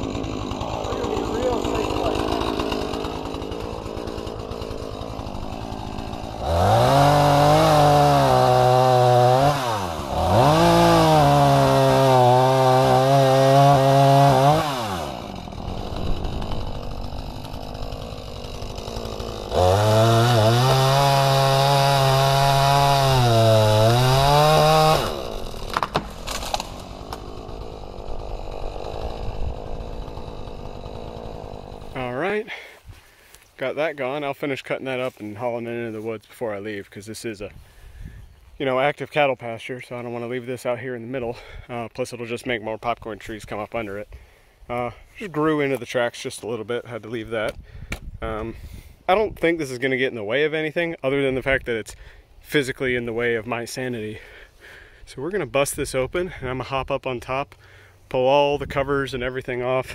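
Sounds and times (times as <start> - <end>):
chainsaw cutting and idling: 0.0 - 33.6, 54.0 - 55.5
wood snapping: 15.9 - 21.3, 23.9 - 28.2.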